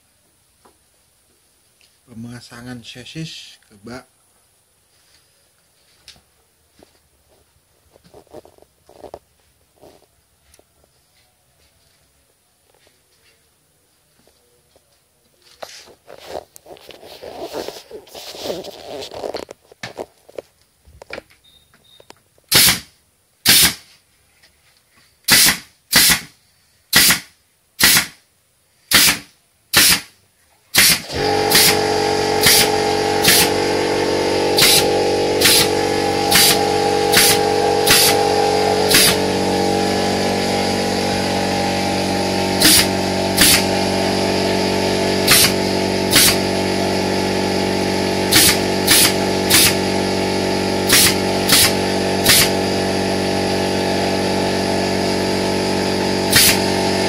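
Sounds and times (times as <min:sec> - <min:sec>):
air compressor running: 0:16.1 - 0:19.4, 0:22.5 - 0:22.8, 0:23.4 - 0:23.8, 0:25.3 - 0:26.3, 0:28.9 - 0:30.1, 0:30.7 - 0:57.0
nail gun firing into wood: 0:22.5 - 0:23.9, 0:25.3 - 0:28.2, 0:28.9 - 0:33.5, 0:34.6 - 0:35.7, 0:36.3 - 0:38.2, 0:38.9 - 0:39.2, 0:42.6 - 0:43.7, 0:45.2 - 0:46.4, 0:48.3 - 0:49.8, 0:50.9 - 0:52.6, 0:56.3 - 0:56.6.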